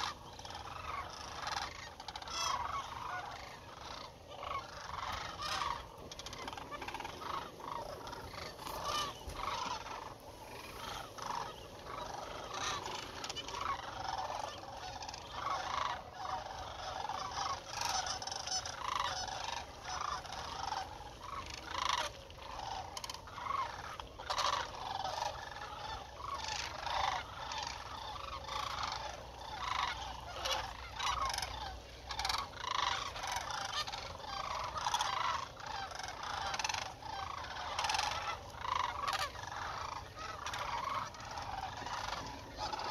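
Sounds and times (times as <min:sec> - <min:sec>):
cranes calling: 0:00.0 - 0:42.9.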